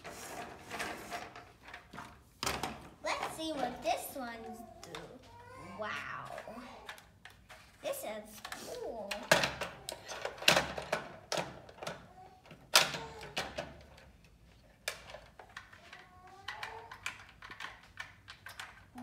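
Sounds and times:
plastic toy clacking on wood: 0:14.8 - 0:19.0.

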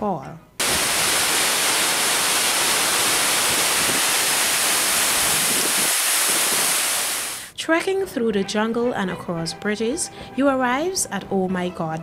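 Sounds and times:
waterfall rushing: 0:00.6 - 0:07.5.

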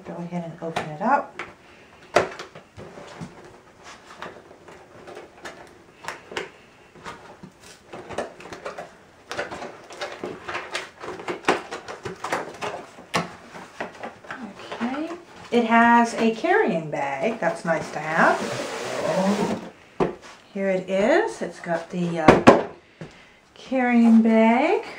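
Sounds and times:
cardboard box being opened: 0:17.9 - 0:19.8
fingers scratching cardboard: 0:18.0 - 0:19.7.

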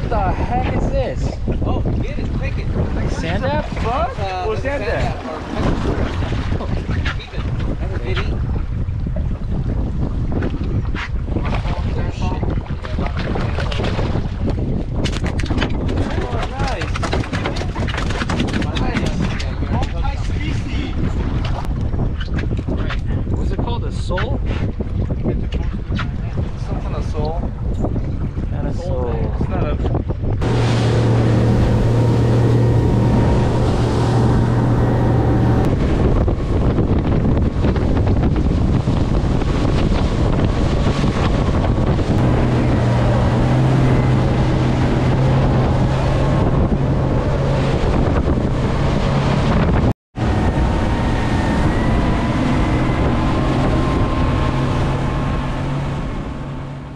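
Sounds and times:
wind buffeting microphone: 0:00.0 - 0:56.9
motorboat engine humming: 0:29.9 - 0:56.9.

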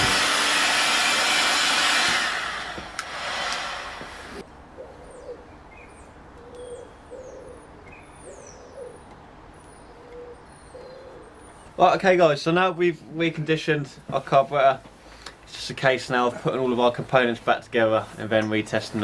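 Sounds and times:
heat gun blowing air: 0:00.0 - 0:04.4
small birds chirping: 0:04.8 - 0:11.8
dove cooing: 0:06.4 - 0:09.1, 0:09.9 - 0:11.5.

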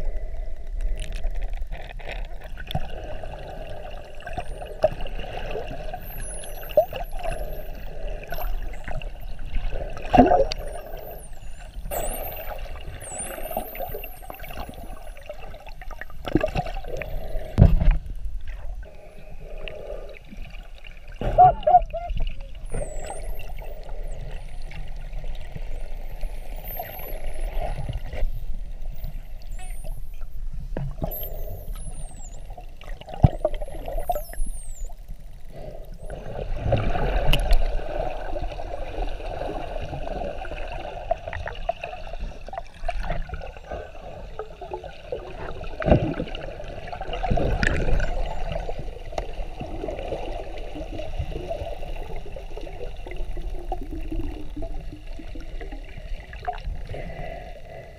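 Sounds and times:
dolphins whistling: 0:05.8 - 0:09.4, 0:10.4 - 0:15.3, 0:21.4 - 0:24.8, 0:25.7 - 0:30.3, 0:31.1 - 0:32.6, 0:33.4 - 0:35.0
water rushing and gurgling: 0:36.0 - 0:57.9.

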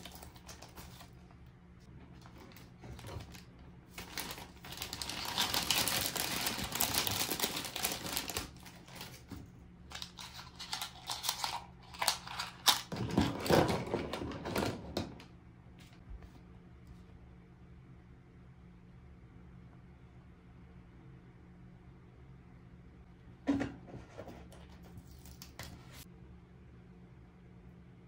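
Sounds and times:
packaging crinkling: 0:00.0 - 0:01.3, 0:02.2 - 0:14.7.

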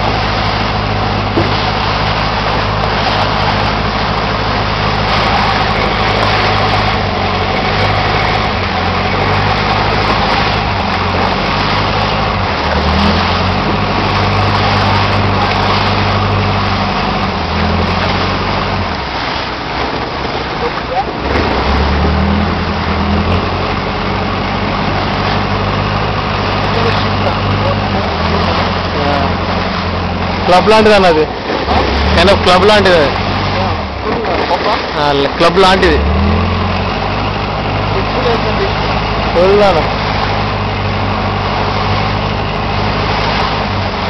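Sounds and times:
boat engine running: 0:00.0 - 0:44.0
dense wash of noise: 0:00.0 - 0:44.0.

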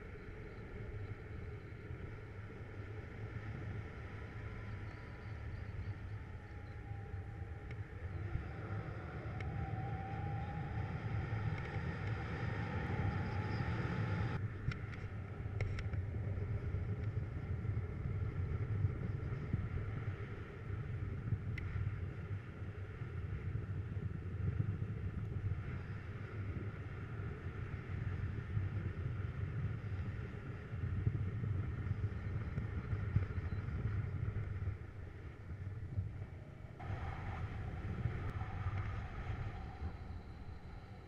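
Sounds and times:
wind buffeting microphone: 0:00.0 - 0:41.0
faint whistling tone: 0:04.1 - 0:14.4, 0:31.9 - 0:34.8, 0:36.8 - 0:41.0.

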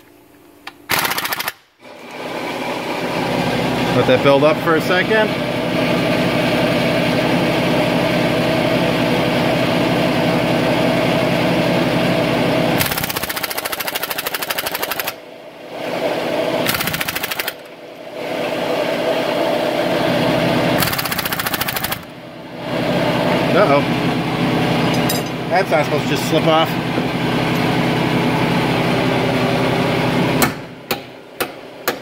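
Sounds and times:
air impact wrench hammering: 0:00.9 - 0:01.7, 0:12.8 - 0:15.2, 0:16.6 - 0:17.7, 0:20.8 - 0:22.1, 0:30.4 - 0:32.0.

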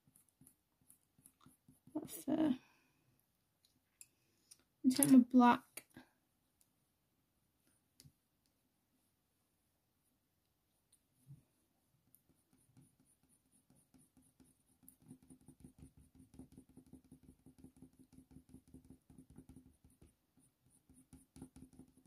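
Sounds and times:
coloured pencil scratching on paper: 0:00.0 - 0:02.3, 0:12.0 - 0:22.0.

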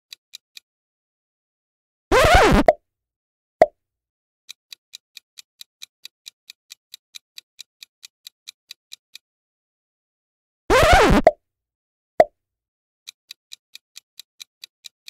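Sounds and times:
clock-like ticking: 0:04.5 - 0:09.2, 0:13.1 - 0:15.0.

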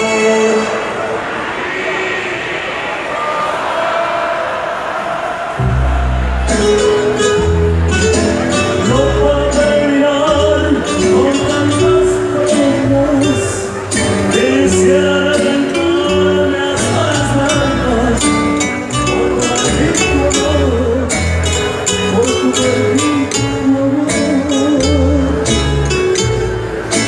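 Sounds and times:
crowd: 0:00.0 - 0:27.0
live band music: 0:05.6 - 0:27.0
person singing: 0:08.7 - 0:26.3.

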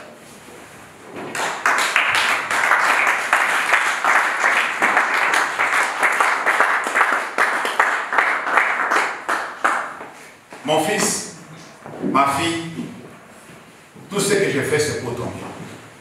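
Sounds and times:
crowd applauding: 0:01.3 - 0:10.3.

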